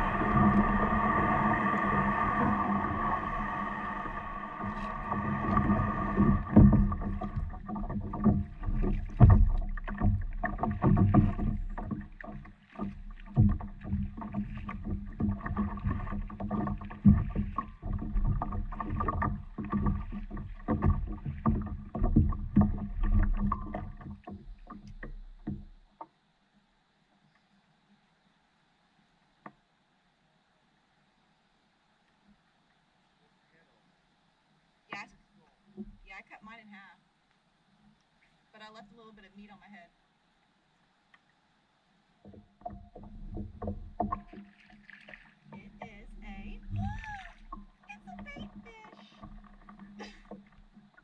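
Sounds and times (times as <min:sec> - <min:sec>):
water splashes: 0:00.0 - 0:26.1, 0:42.2 - 0:51.0
knocks on paddleboard: 0:04.6 - 0:25.8, 0:42.3 - 0:51.0.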